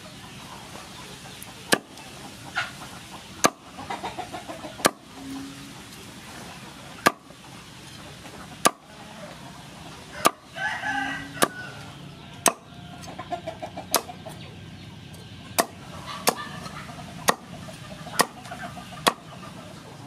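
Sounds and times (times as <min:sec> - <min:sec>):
chickens crowing and clucking: 0:00.0 - 0:20.0
cleaver chopping on wooden board: 0:01.7 - 0:02.0, 0:03.4 - 0:03.6, 0:04.8 - 0:05.0, 0:07.0 - 0:07.3, 0:08.6 - 0:08.8, 0:10.2 - 0:10.4, 0:12.4 - 0:12.7, 0:15.6 - 0:16.5, 0:17.2 - 0:17.5, 0:18.2 - 0:18.4, 0:19.0 - 0:19.2.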